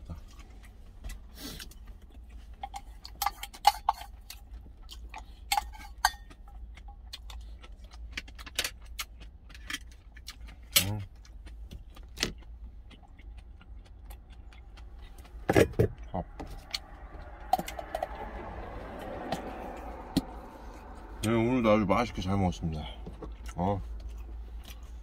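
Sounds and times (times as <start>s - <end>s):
steady low rumble: 6.3s - 25.0s.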